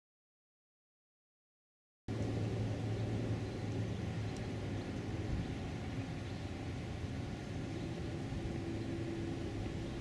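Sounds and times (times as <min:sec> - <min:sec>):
low outdoor rumble: 0:02.1 - 0:10.0
steady hum: 0:02.1 - 0:10.0.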